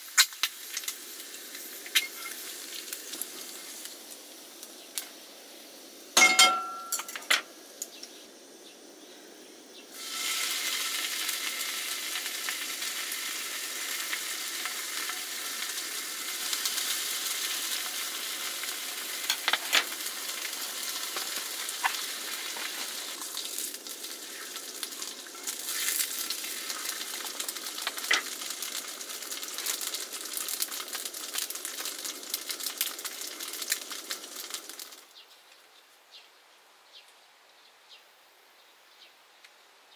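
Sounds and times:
food sizzling in a pan: 0.0s - 35.2s
ringing metallic clank: 6.2s - 7.4s.

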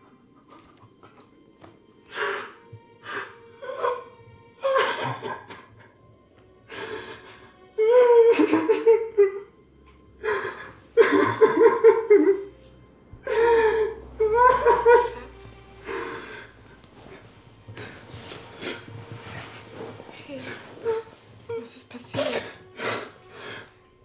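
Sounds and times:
person sobbing: 2.2s - 5.8s, 6.7s - 9.5s, 10.2s - 12.5s, 13.2s - 15.2s.

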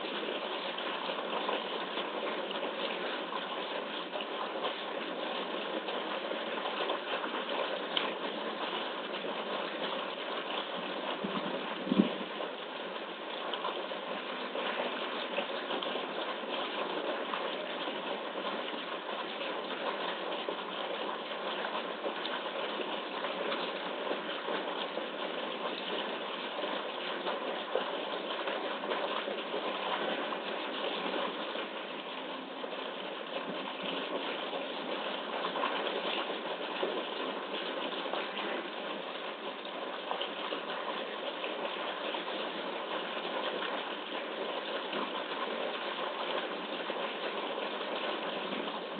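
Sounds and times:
animals splashing in water: 0.0s - 48.9s
rushing water: 0.0s - 48.9s.

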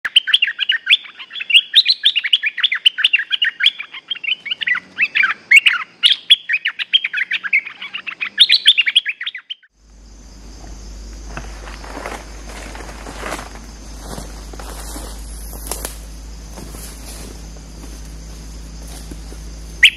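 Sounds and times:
bird singing chirpy notes: 0.0s - 9.7s, 17.7s - 19.9s
low hum: 9.8s - 19.9s.

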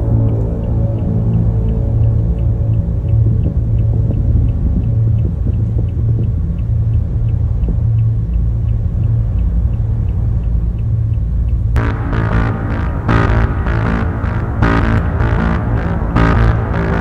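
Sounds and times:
faint ticks: 0.0s - 11.8s
low throbbing drone: 0.0s - 17.0s.

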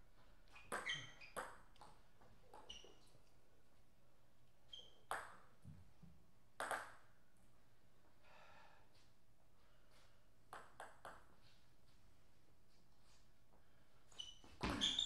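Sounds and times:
ball bouncing lightly: 0.5s - 2.9s, 5.1s - 7.0s, 10.5s - 11.3s.

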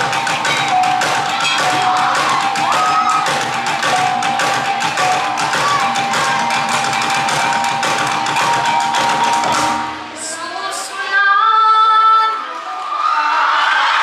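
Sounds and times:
drum beat: 0.0s - 10.2s
hanging gongs ringing: 0.0s - 10.2s.

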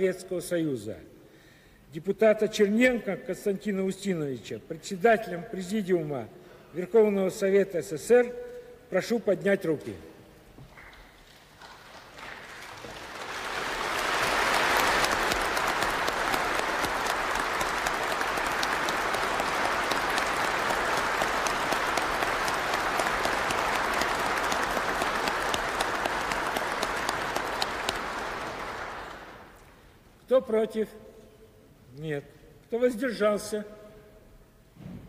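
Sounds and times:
crowd applauding: 10.9s - 29.8s.

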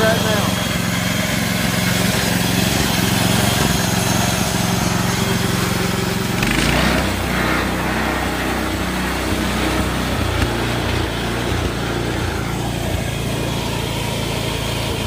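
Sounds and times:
small gasoline engine running: 0.0s - 15.0s.

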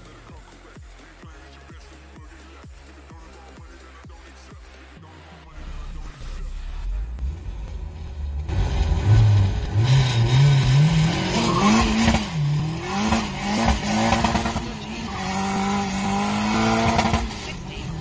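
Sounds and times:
turbocharged car engine revving: 0.0s - 18.0s
tires wheelspinning: 6.1s - 18.0s.

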